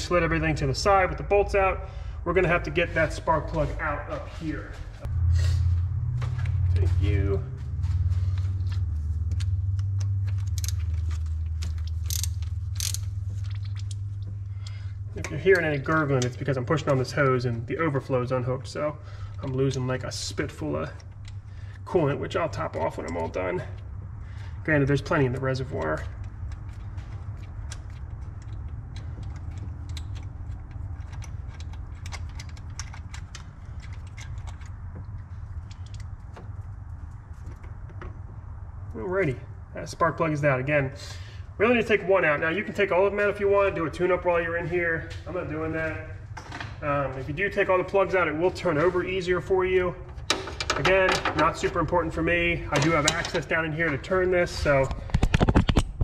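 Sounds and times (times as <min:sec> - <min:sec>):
steady low hum: 0:00.0 - 0:56.0
hand ratchet clicking: 0:09.3 - 0:14.8.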